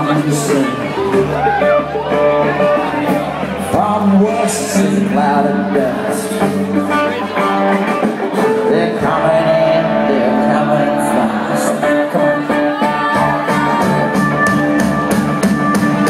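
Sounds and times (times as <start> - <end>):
person singing: 0.0 - 14.8
country band playing: 0.0 - 16.0.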